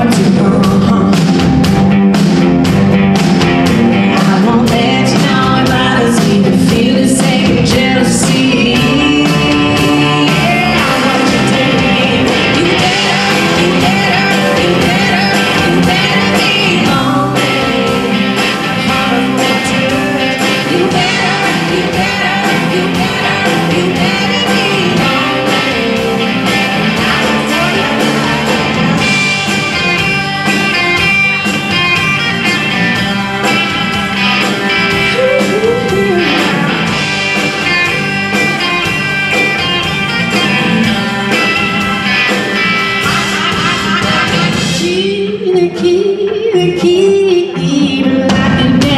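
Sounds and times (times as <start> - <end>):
woman singing: 0.0 - 1.6, 4.0 - 29.1, 35.0 - 36.5, 44.6 - 48.9
drum kit: 0.0 - 48.9
electric guitar: 0.0 - 48.9.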